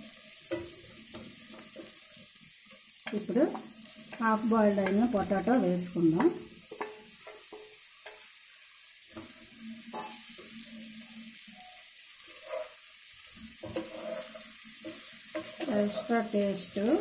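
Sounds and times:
food sizzling in a pan: 0:00.0 - 0:17.0
spatula scraping a pan: 0:09.1 - 0:17.0.

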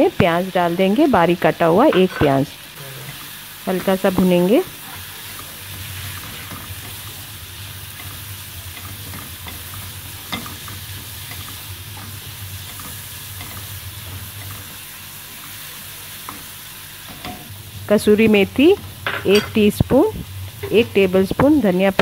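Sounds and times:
onions sizzling in a frying pan: 0:00.0 - 0:22.0
spatula scraping and tapping pan: 0:07.9 - 0:14.8.

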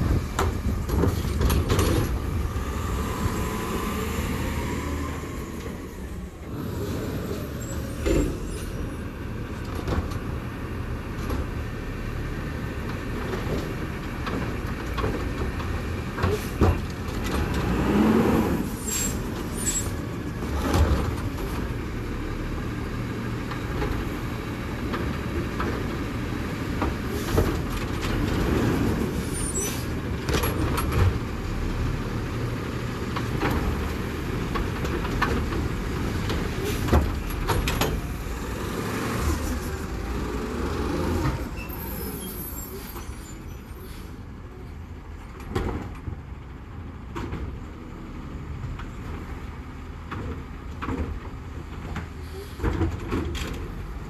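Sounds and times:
loud clanks and knocks: 0:00.0 - 0:02.5, 0:33.1 - 0:38.8.

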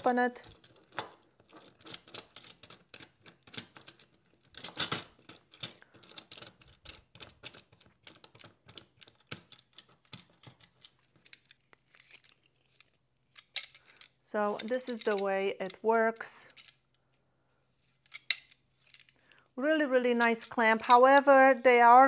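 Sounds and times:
metal clamp clicking and rattling: 0:00.4 - 0:15.8, 0:18.0 - 0:19.2.

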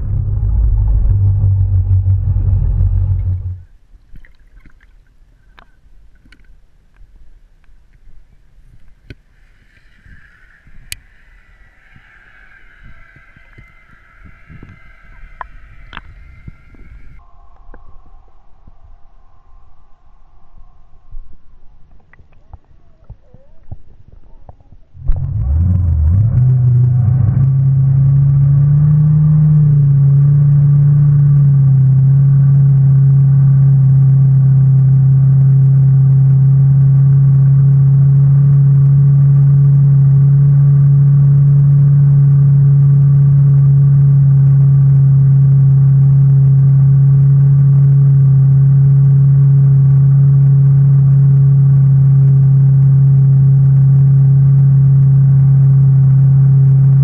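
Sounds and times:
boat engine droning: 0:00.0 - 0:03.9, 0:08.1 - 0:17.2, 0:25.0 - 0:57.0.

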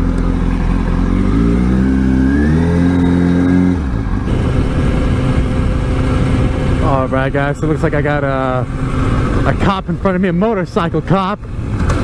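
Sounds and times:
motorcycle engine accelerating: 0:00.0 - 0:12.0
wind noise while riding: 0:03.4 - 0:10.5, 0:11.4 - 0:12.0.

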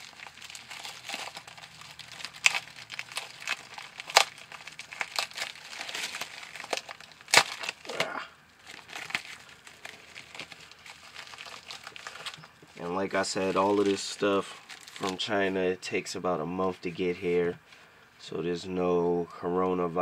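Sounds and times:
plastic mailer crinkling: 0:00.0 - 0:15.5.

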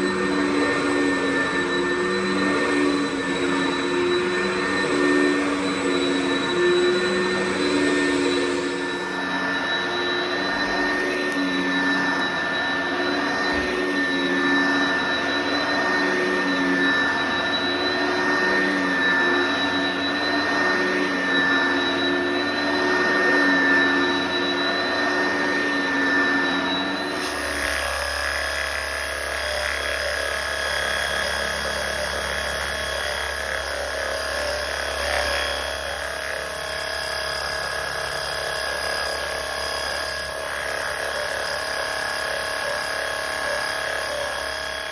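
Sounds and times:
spray wand motor hum: 0:00.0 - 0:44.9
vacuum cleaner running: 0:00.0 - 0:44.9.

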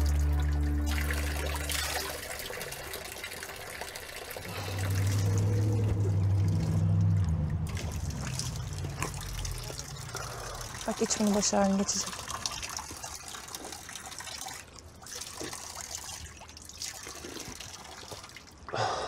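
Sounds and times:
music with long low held notes: 0:00.0 - 0:02.2, 0:04.5 - 0:10.5
running water trickling and pouring: 0:00.0 - 0:18.7.

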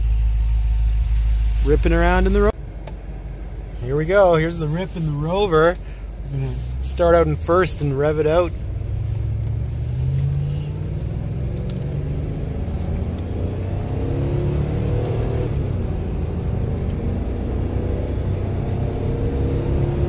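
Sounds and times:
car engine accelerating: 0:00.0 - 0:20.0.

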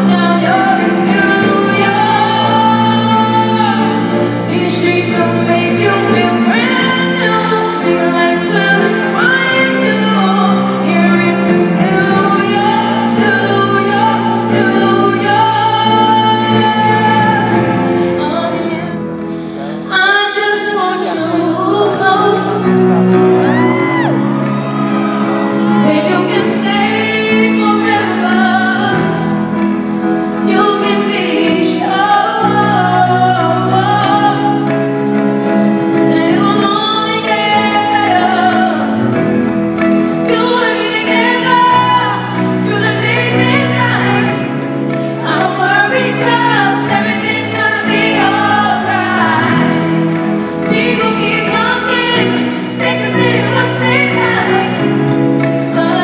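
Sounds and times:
piano chords: 0:00.0 - 0:56.0
woman singing: 0:00.0 - 0:56.0.

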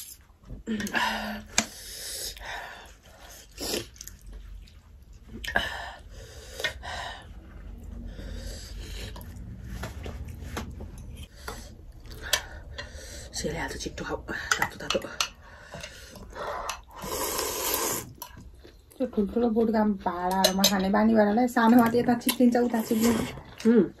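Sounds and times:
noodles slurped and chewed: 0:01.4 - 0:13.0, 0:14.9 - 0:19.0.

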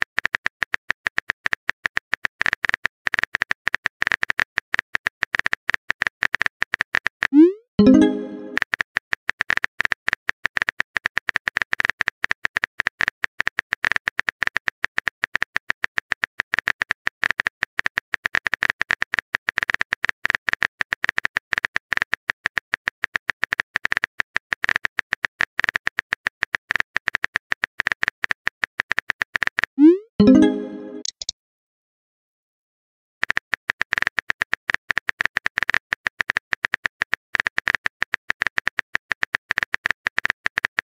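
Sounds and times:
keyboard key clicks: 0:31.0 - 0:31.3.

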